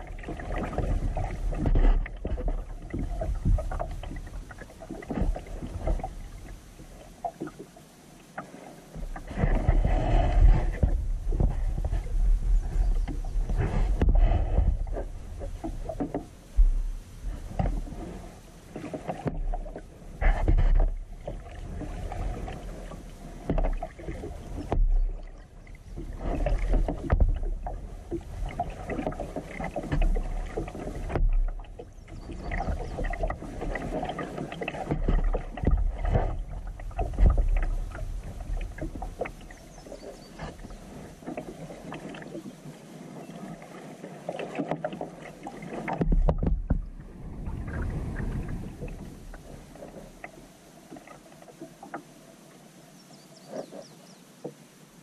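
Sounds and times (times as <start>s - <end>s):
paddle splashing in water: 0.0s - 55.0s.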